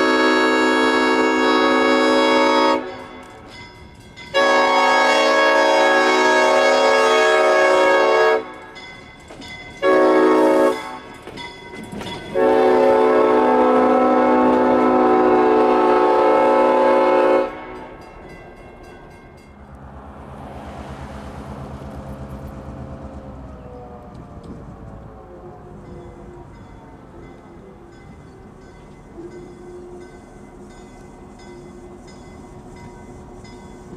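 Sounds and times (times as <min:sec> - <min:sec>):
locomotive air horn blasts: 0:00.0 - 0:03.2, 0:04.3 - 0:08.8, 0:09.8 - 0:11.2, 0:12.3 - 0:18.0
low rumble: 0:19.5 - 0:25.1.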